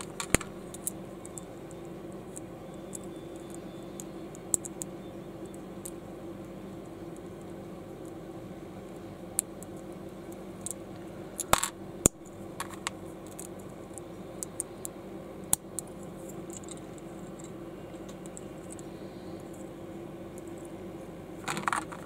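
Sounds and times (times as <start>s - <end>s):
plastic blocks clicking: 0.0s - 1.5s, 12.6s - 13.5s, 21.4s - 22.0s
steady low hum: 0.0s - 22.0s.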